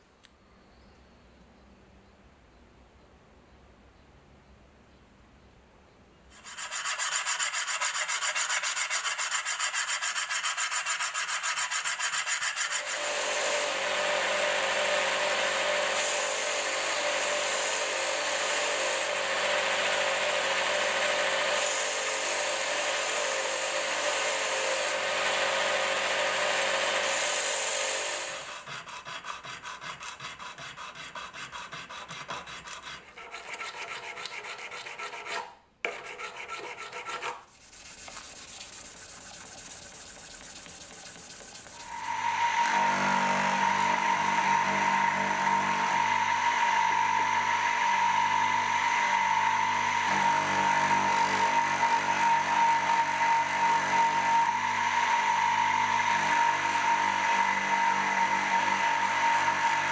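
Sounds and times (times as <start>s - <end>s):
rapid rubbing strokes: 6.3s - 13.0s, 28.2s - 42.4s
hand sanding strokes: 6.3s - 20.2s, 20.8s - 46.7s
electric belt sander running: 11.8s - 28.7s, 38.4s - 59.9s.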